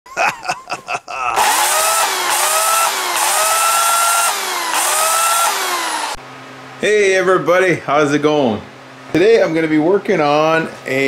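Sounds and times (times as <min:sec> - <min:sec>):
electric chainsaw motor whine: 0:01.4 - 0:06.2
hissing chainsaw chain: 0:01.4 - 0:06.2.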